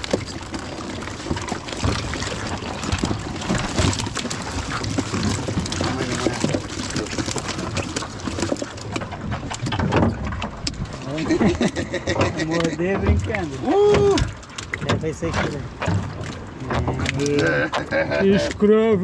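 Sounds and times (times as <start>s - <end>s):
seawater splashing and sloshing: 0.0s - 19.0s
small irregular knocks: 2.9s - 10.9s.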